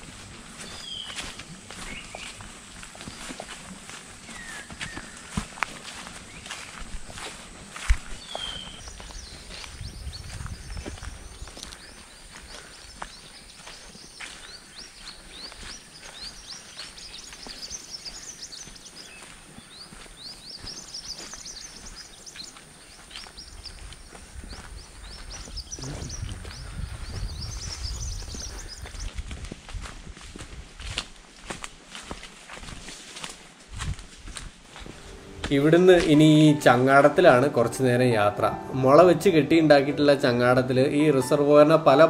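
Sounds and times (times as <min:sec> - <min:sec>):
birds chirping: 0:00.0 - 0:29.3
footsteps on trail: 0:00.0 - 0:40.3.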